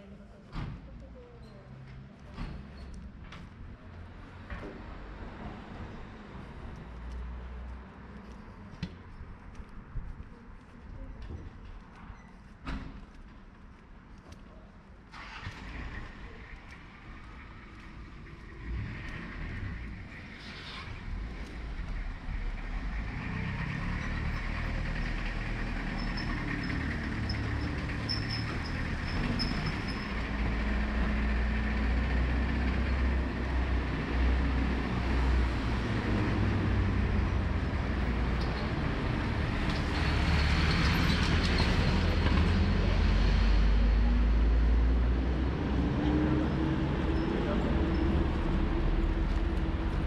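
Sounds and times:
large vehicle engine rumbling: 15.1s - 50.0s.

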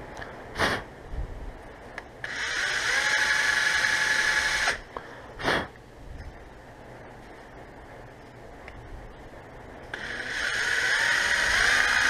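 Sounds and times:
power drill boring into wood: 2.2s - 4.8s, 9.9s - 12.0s.

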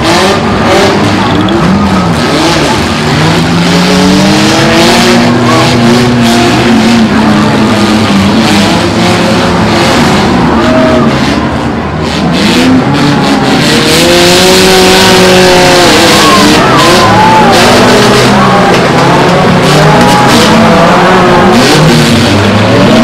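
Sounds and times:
car engines revving: 0.0s - 23.0s.

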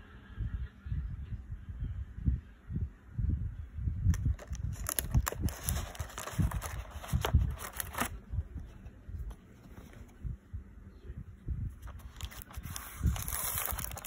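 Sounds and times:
plastic film crinkling: 4.1s - 8.2s, 11.8s - 14.0s.

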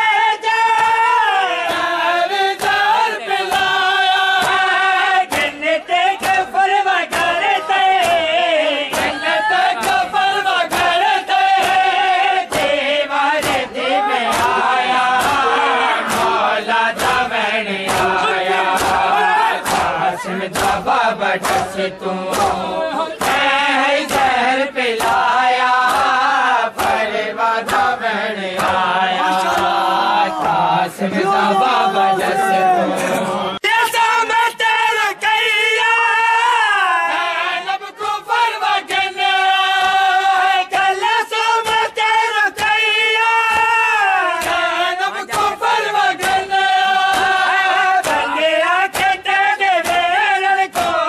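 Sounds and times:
men chanting in unison: 0.0s - 51.0s
chest-beating slaps: 2.5s - 28.0s, 28.6s - 30.7s, 44.4s - 51.0s.

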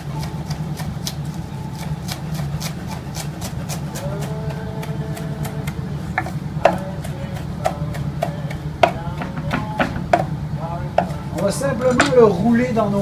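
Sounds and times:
knife chopping on wooden board: 1.8s - 10.3s.

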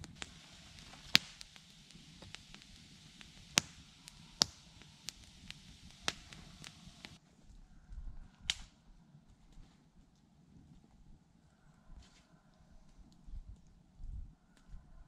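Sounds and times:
campfire crackling: 0.0s - 7.2s.

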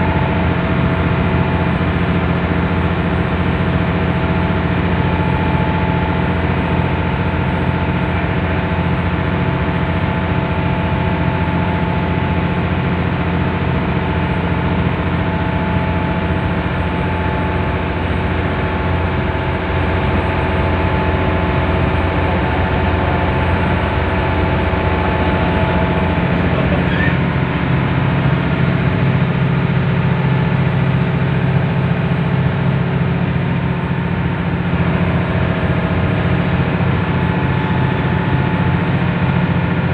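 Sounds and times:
boat engine drone: 0.0s - 39.9s
humming tones: 18.6s - 31.4s.

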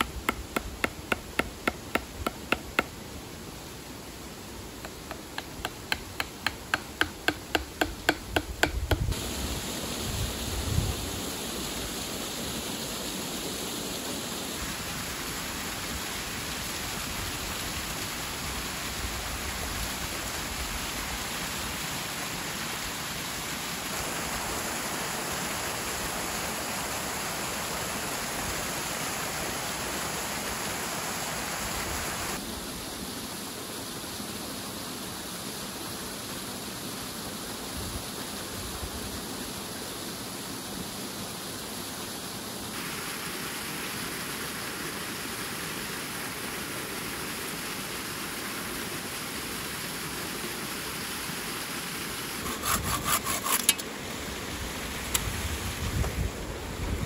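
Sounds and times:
rapid strokes on wood: 0.0s - 2.9s, 4.8s - 9.1s, 52.4s - 53.8s
waterfall and creek rushing: 0.0s - 57.0s.

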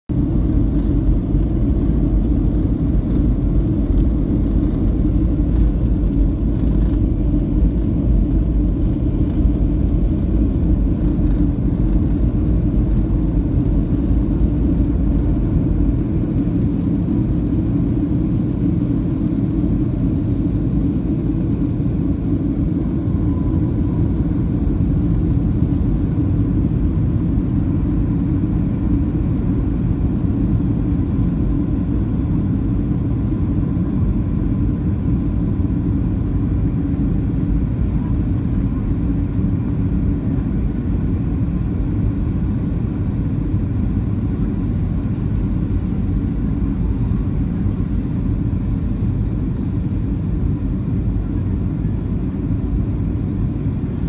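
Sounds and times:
airliner cabin low rumble: 0.1s - 54.0s.

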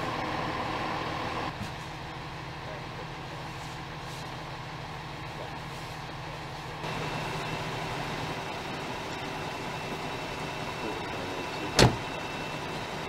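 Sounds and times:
vehicle engines idling: 0.0s - 13.0s.

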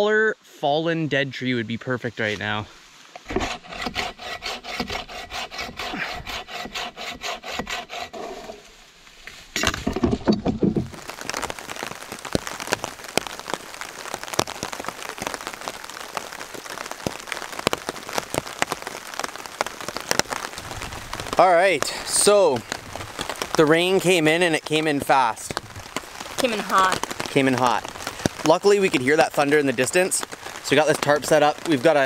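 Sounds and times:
rain on a tarp: 1.2s - 7.7s, 8.9s - 32.0s
hand saw cutting wood: 3.2s - 8.7s.

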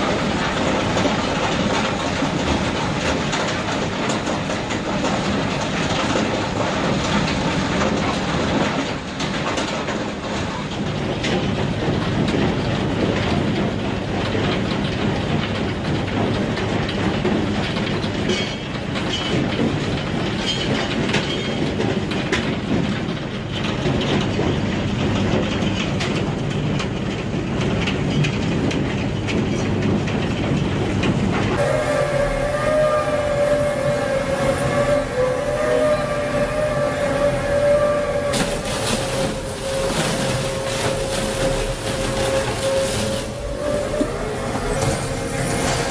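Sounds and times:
machine whine: 31.6s - 45.9s
stone crusher clattering: 38.4s - 43.6s.

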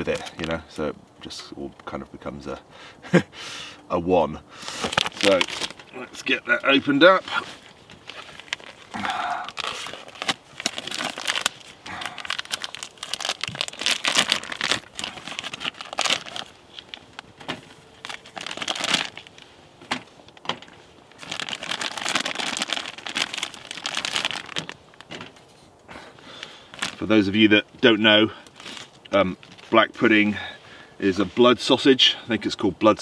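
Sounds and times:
plastic packaging crinkling: 0.0s - 0.6s, 4.6s - 25.5s, 26.3s - 27.4s, 28.4s - 29.9s.

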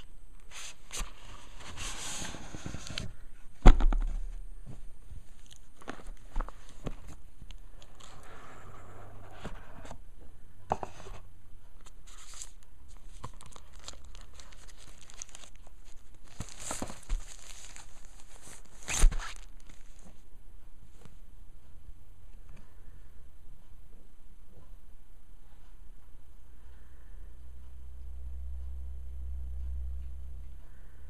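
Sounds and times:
paper and card rustling: 0.5s - 4.8s, 11.8s - 20.2s.

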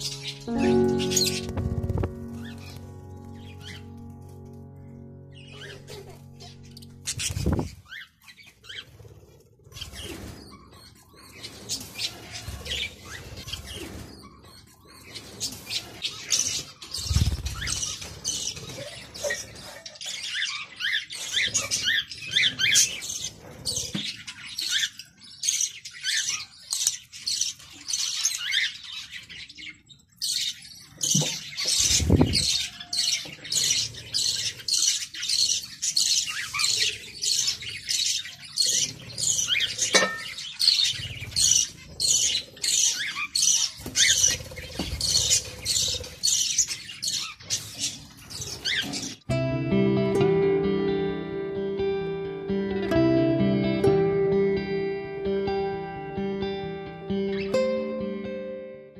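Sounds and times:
budgerigar chirping and chattering: 29.7s - 49.2s.

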